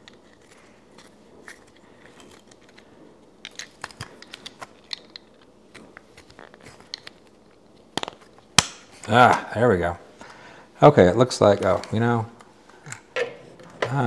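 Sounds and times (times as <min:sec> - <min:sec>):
plastic parts clicking into place: 0:03.4 - 0:07.3.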